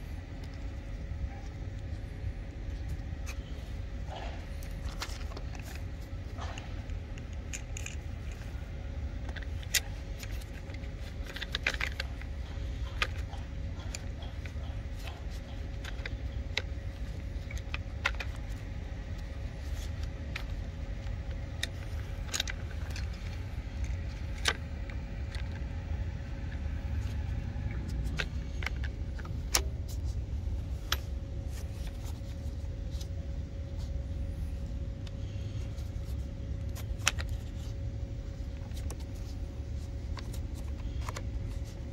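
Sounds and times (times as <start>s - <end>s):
steady low rumble: 0.0s - 41.9s
plastic clicks and rattles: 4.1s - 30.2s.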